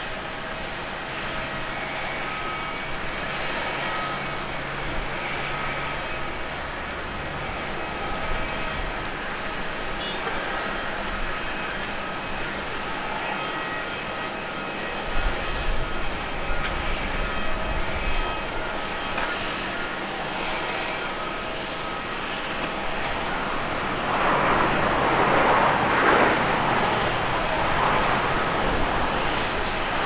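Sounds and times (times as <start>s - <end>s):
jet engines whining: 0.0s - 30.0s
jet reverse thrust roar: 21.6s - 30.0s.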